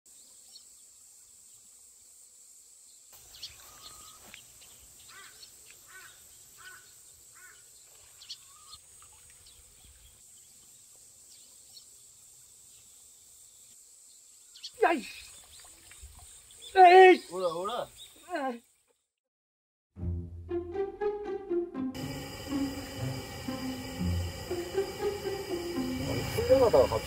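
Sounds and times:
small birds chirping: 0:02.8 - 0:19.2
high insect drone: 0:22.0 - 0:27.0.

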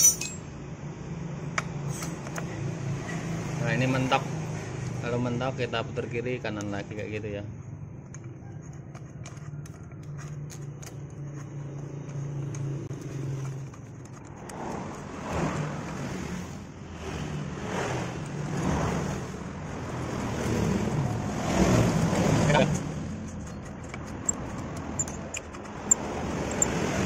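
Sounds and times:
thread tap scraping metal: 0:21.9 - 0:27.0.

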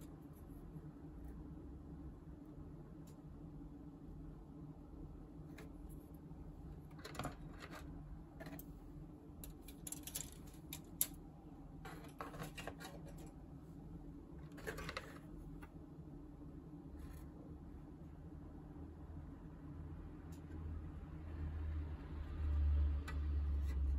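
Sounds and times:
faint low hum: 0:00.0 - 0:23.9
plastic parts clicking and rattling: 0:09.4 - 0:11.2.

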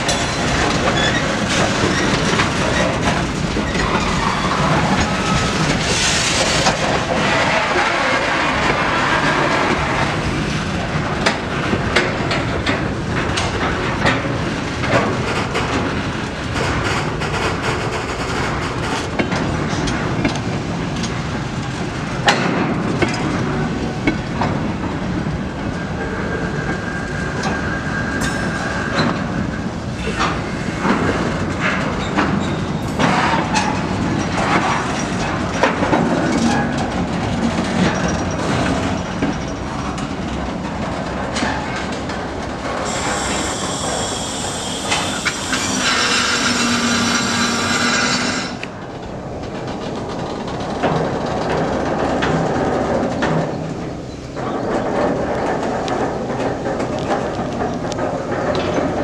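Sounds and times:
wagon wheels clattering over rail joints: 0:00.0 - 0:26.6, 0:29.9 - 0:59.0
wheel squeal: 0:00.2 - 0:02.9, 0:42.8 - 0:48.6.

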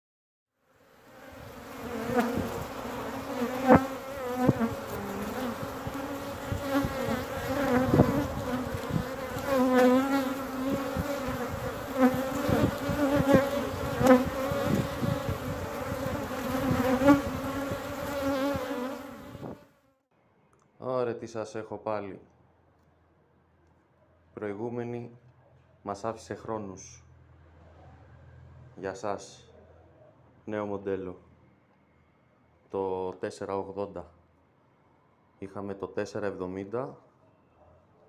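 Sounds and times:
honeybees buzzing: 0:00.8 - 0:19.8.

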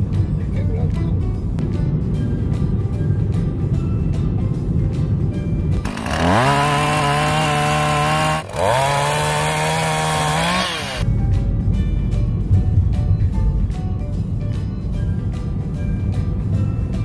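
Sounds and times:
background music: 0:00.0 - 0:17.0
chainsaw revving: 0:05.8 - 0:11.0.

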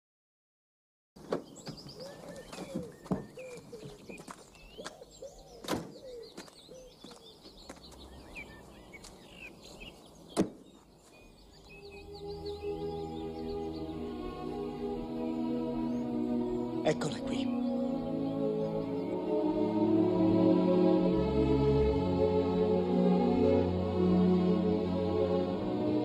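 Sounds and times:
car doors opening and shutting: 0:01.2 - 0:01.8
birds chirping: 0:01.2 - 0:26.0.

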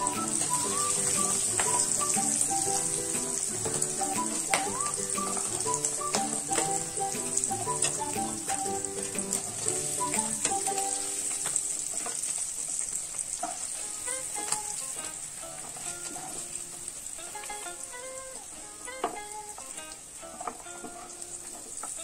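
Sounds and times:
tune of held notes: 0:00.0 - 0:11.4
food sizzling in bubbling oil: 0:00.0 - 0:22.0.

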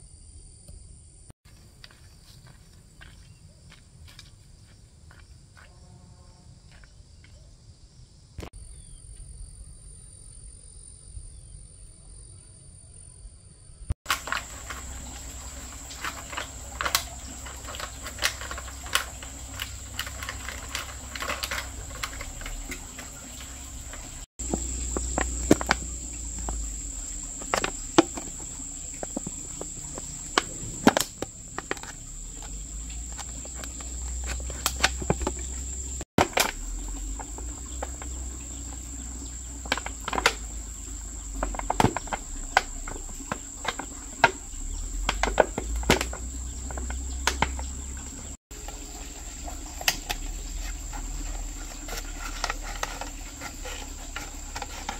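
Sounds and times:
sharp clicks and knocks: 0:14.1 - 0:38.9, 0:39.6 - 0:40.6
insects shrilling: 0:14.1 - 0:54.9.

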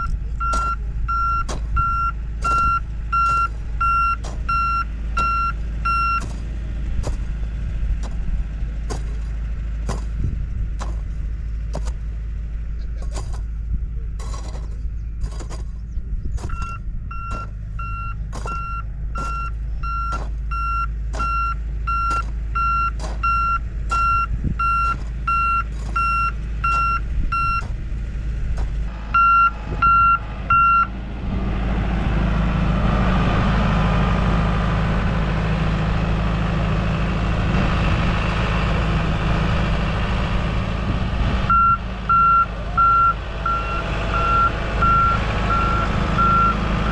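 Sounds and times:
reversing alarm beeping: 0:00.0 - 0:06.3, 0:16.5 - 0:27.7, 0:29.1 - 0:30.9, 0:41.5 - 0:46.9
hoe chopping soil: 0:00.0 - 0:12.2, 0:12.9 - 0:13.5, 0:14.2 - 0:28.9
diesel engine running: 0:00.0 - 0:46.9.

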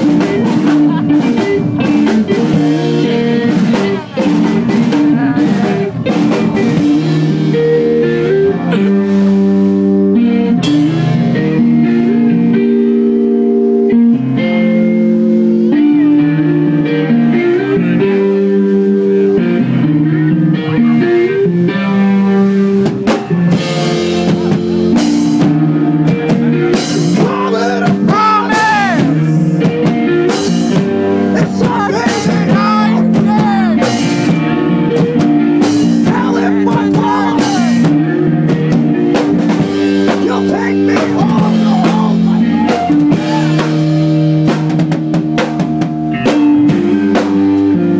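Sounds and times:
drum kit and cymbals: 0:00.0 - 0:12.3, 0:22.7 - 0:47.9
electric guitars: 0:00.0 - 0:47.9.

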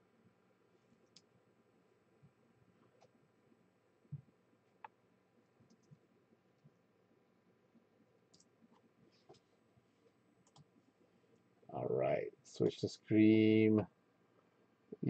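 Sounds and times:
faint computer mouse clicks: 0:05.6 - 0:06.0, 0:08.3 - 0:08.5, 0:10.4 - 0:10.7.

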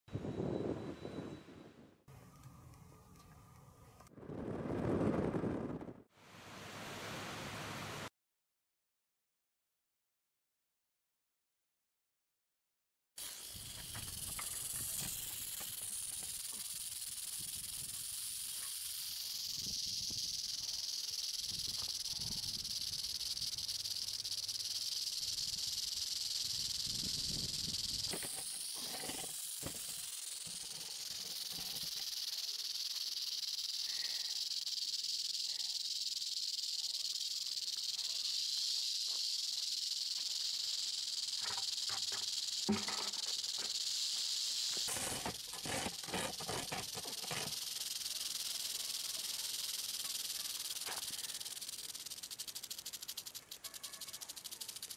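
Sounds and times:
rattlesnake rattling: 0:13.2 - 0:54.9.

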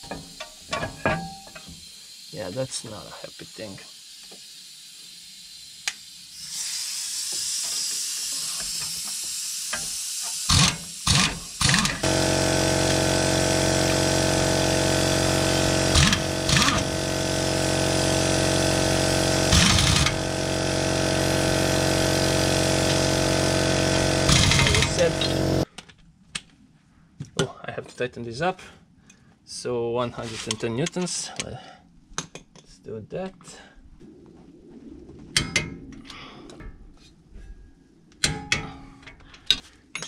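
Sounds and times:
motor humming: 0:10.5 - 0:25.6.

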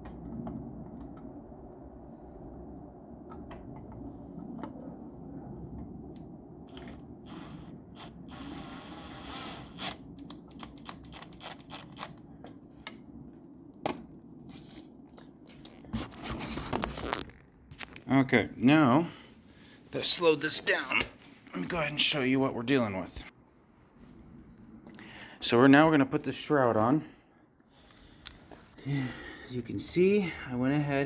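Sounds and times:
steady low hum: 0:00.0 - 0:31.0
drill motor whining: 0:06.7 - 0:10.0
drill clicks and ratcheting rattles: 0:06.7 - 0:12.2.

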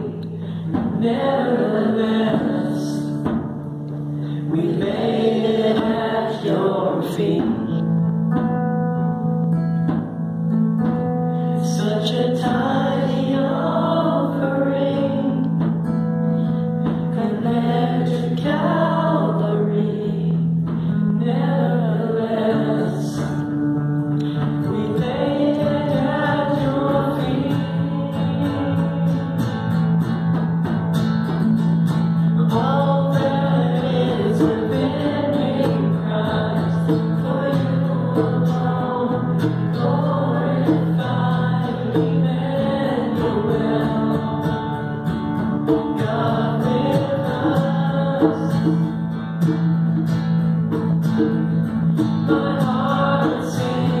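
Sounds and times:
man singing slow melody: 0:00.0 - 0:03.3, 0:04.2 - 0:08.0, 0:11.3 - 0:23.5, 0:24.2 - 0:30.0, 0:32.4 - 0:45.1, 0:45.7 - 0:48.9, 0:52.3 - 0:54.0
guitar: 0:00.0 - 0:54.0.

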